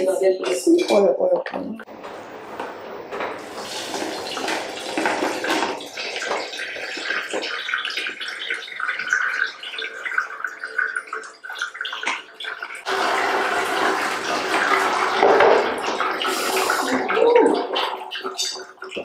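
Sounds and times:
pulp and water sloshing: 0:14.4 - 0:19.0.

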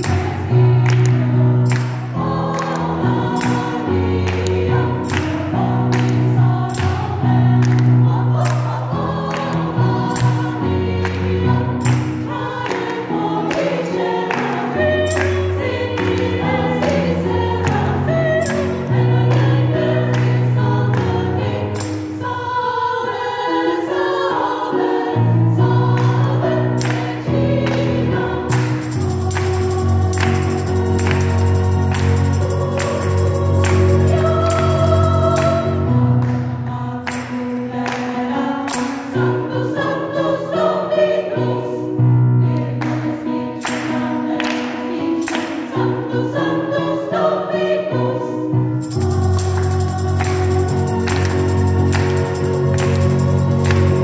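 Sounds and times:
hand claps on the beat: 0:00.0 - 0:18.7, 0:19.3 - 0:21.2, 0:26.8 - 0:27.9, 0:28.5 - 0:36.5, 0:37.1 - 0:39.1, 0:48.8 - 0:54.0
piano accompaniment: 0:00.0 - 0:54.0
women's choir singing a hymn: 0:00.0 - 0:54.0.

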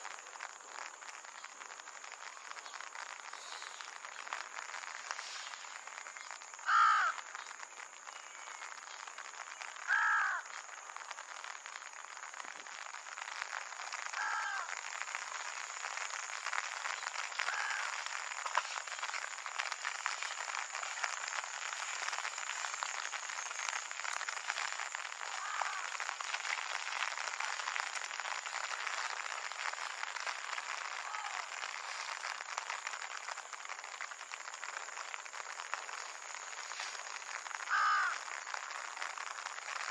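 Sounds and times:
rain pattering: 0:00.0 - 0:39.9
crow cawing: 0:06.6 - 0:07.2, 0:09.9 - 0:10.4, 0:14.2 - 0:14.7, 0:17.5 - 0:18.0, 0:25.3 - 0:25.9, 0:37.7 - 0:38.2.

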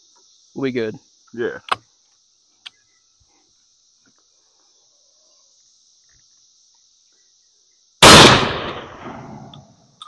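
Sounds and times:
insects droning: 0:00.0 - 0:10.0
shotgun shot: 0:08.0 - 0:09.4.

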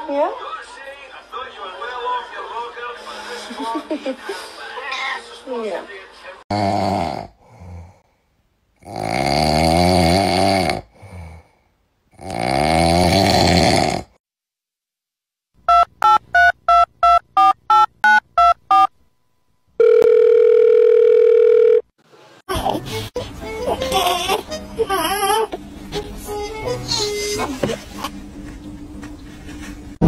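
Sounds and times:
wavering snore-like sounds: 0:08.8 - 0:11.5, 0:12.1 - 0:14.2.

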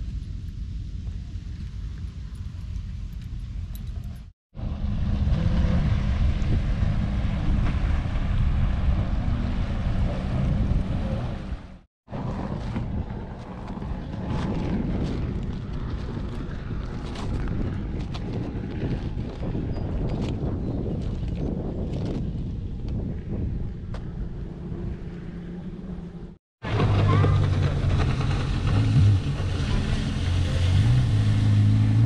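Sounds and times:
wind buffeting microphone: 0:00.0 - 0:32.0.

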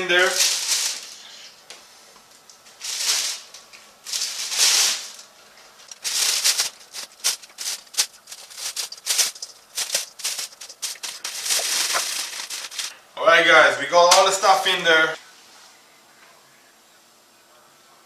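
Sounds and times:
plastic bag crinkling: 0:00.0 - 0:01.4, 0:02.6 - 0:13.0.

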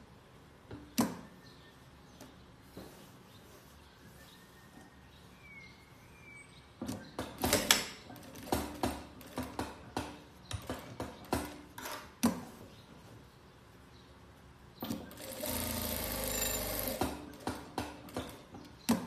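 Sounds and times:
sewing machine stitching bursts: 0:14.9 - 0:17.6.

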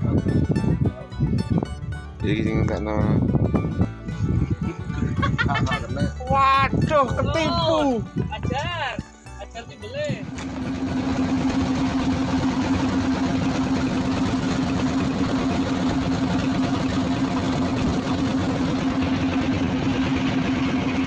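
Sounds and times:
boat engine droning: 0:10.2 - 0:21.0
water rushing past hull: 0:10.3 - 0:21.0.

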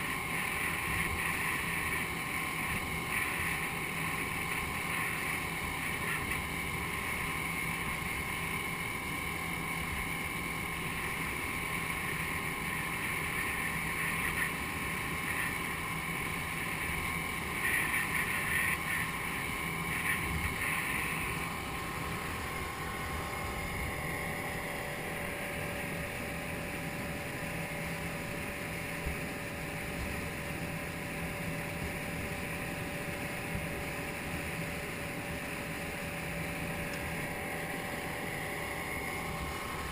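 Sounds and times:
outboard motor at speed: 0:00.0 - 0:39.9.

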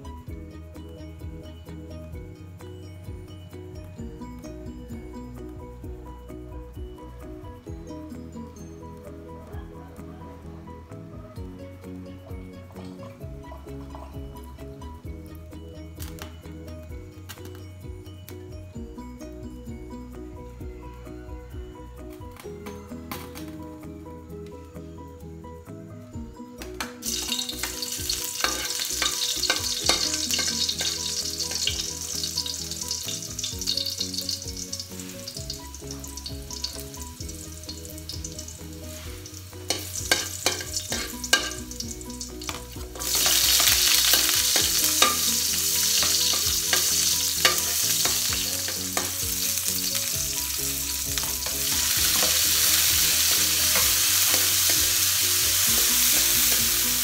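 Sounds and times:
garlic sizzling in hot oil: 0:27.0 - 0:57.0
metal ladle scraping a wok: 0:27.1 - 0:35.7, 0:38.0 - 0:57.0.

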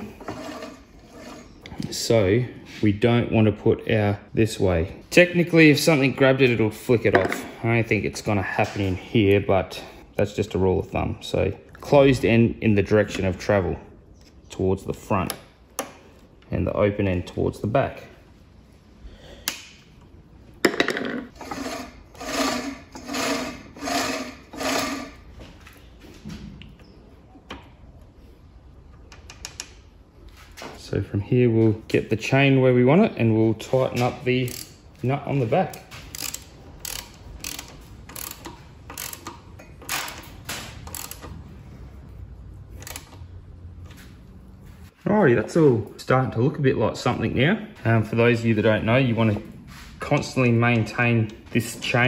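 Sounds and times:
rasping strokes: 0:00.0 - 0:01.7, 0:21.3 - 0:25.2
hand tools clicking and ratcheting: 0:33.9 - 0:34.8, 0:35.6 - 0:41.4, 0:42.8 - 0:43.2.

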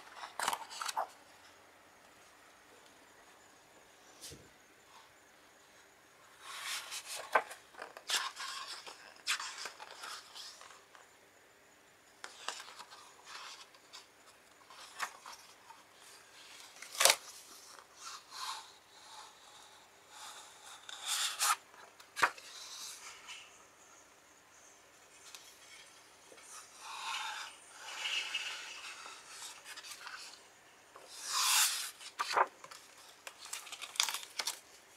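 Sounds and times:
book pages turning: 0:00.0 - 0:01.2, 0:06.4 - 0:10.8, 0:31.0 - 0:34.8.

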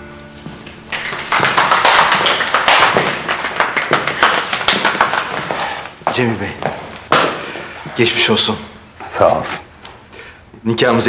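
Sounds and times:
small group applauding: 0:00.9 - 0:06.2.

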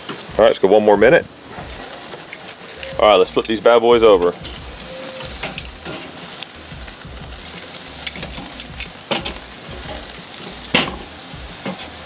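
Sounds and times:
steaks sizzling on a grill: 0:00.0 - 0:12.0
tongs clicking against grate: 0:07.6 - 0:11.0.

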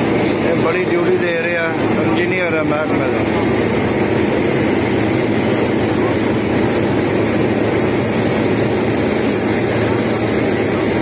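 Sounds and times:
diesel paving machinery droning: 0:00.0 - 0:11.0.

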